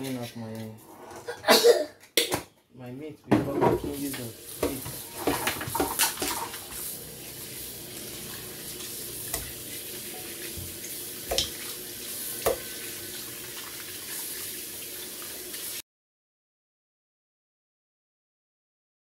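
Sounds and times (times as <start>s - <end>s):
tap running into steel sink: 12.4s - 12.6s.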